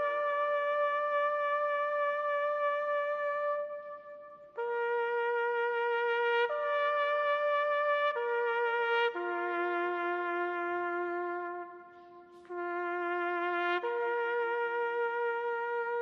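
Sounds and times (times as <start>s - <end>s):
solo trumpet playing long notes: 0.0s - 16.0s.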